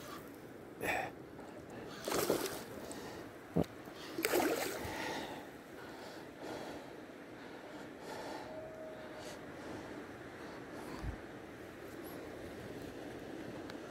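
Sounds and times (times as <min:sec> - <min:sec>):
river water washing: 0:01.9 - 0:03.2, 0:04.1 - 0:05.4.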